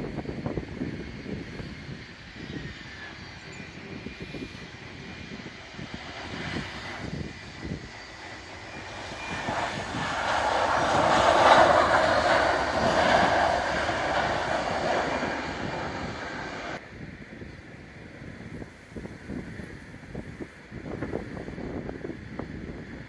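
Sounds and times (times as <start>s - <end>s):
jet engines roaring: 0.0s - 16.8s
wind buffeting microphone: 0.0s - 23.0s.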